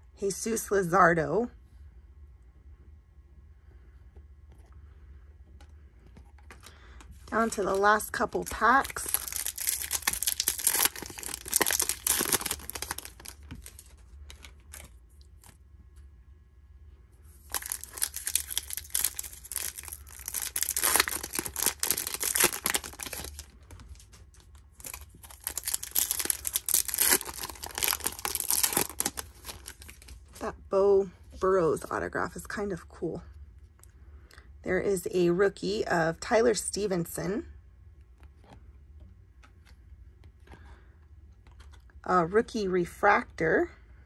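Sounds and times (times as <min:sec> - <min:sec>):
foil wrapper crinkling and tearing: 0:06.4 - 0:15.6, 0:17.4 - 0:30.4.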